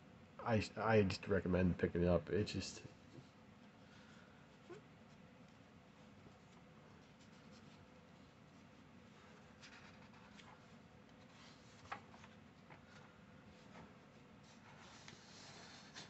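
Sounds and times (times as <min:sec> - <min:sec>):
paper pages turning: 0:09.1 - 0:16.0.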